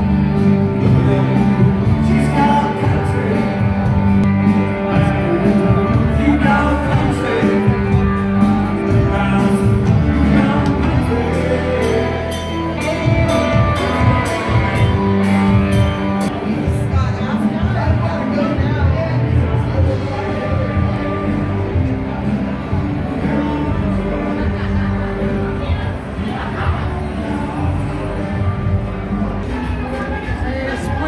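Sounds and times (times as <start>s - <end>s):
bass line: 0.0s - 31.0s
electric guitars: 0.0s - 31.0s
person singing: 0.8s - 15.3s.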